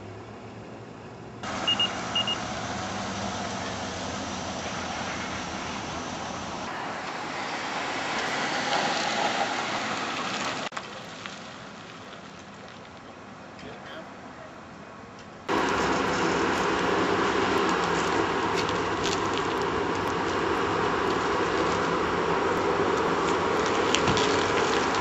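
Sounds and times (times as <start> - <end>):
traffic noise: 0.0 - 25.0
short high beeps: 1.7 - 2.4.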